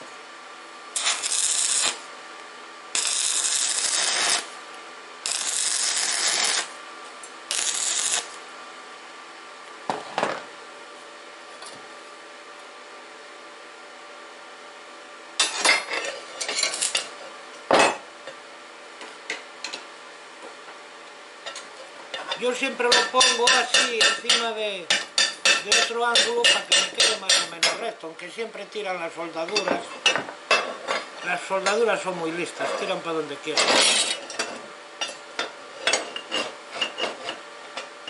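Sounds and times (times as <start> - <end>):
arc welding crackling hiss: 0.9 - 2.2, 2.9 - 8.5, 16.5 - 17.1, 22.4 - 28.6.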